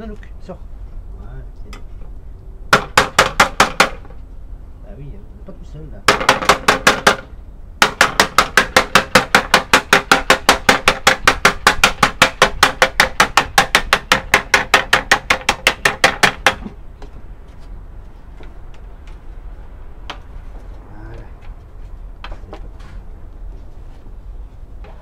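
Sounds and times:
rapid hammer blows: 6.1s - 16.8s.

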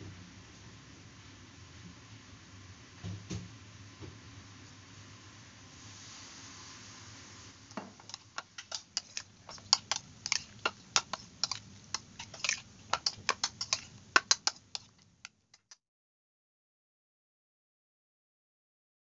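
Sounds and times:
metal spoon clicking against bowl: 8.0s - 15.8s.

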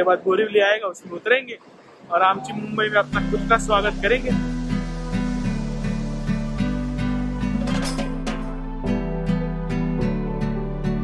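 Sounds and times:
acoustic guitar playing: 2.3s - 11.0s
low bass line: 2.4s - 11.0s.

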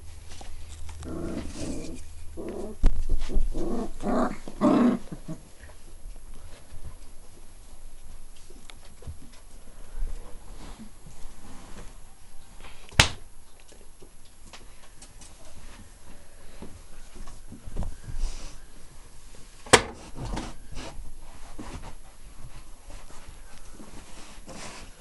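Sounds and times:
rustling on fabric: 15.3s - 25.0s.

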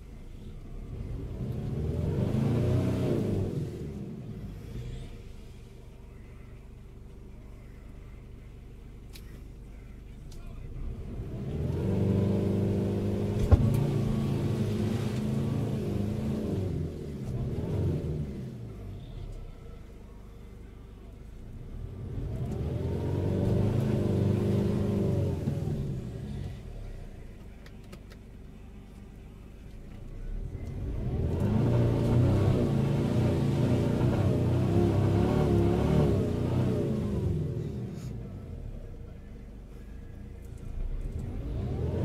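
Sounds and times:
truck engine at high revs: 0.0s - 5.6s, 10.7s - 19.8s, 21.4s - 28.1s, 30.0s - 39.0s, 40.4s - 42.0s.

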